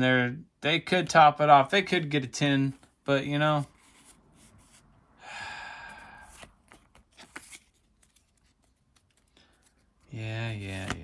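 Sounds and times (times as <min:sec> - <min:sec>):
person sighing: 0:05.2 - 0:06.5.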